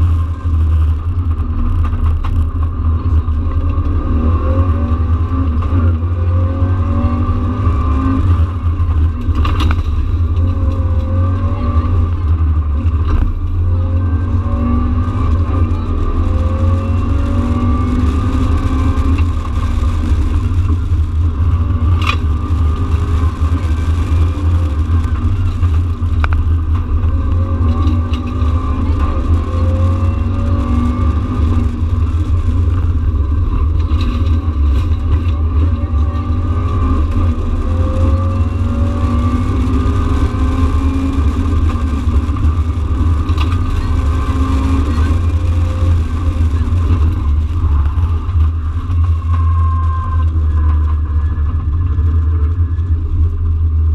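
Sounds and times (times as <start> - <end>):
car engine accelerating: 0.0 - 53.9.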